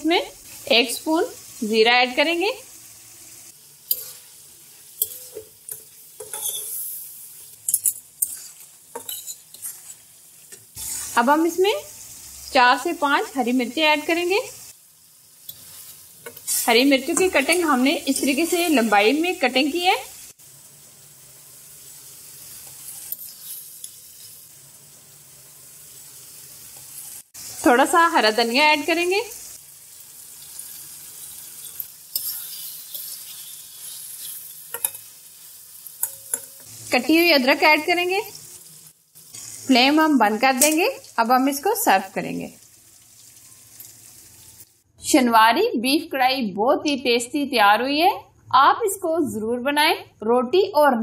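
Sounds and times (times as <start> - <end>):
meat sizzling: 0.0 - 44.9
metal spatula scraping a metal pan: 3.9 - 11.3, 15.4 - 19.1, 22.5 - 24.4, 30.6 - 35.1.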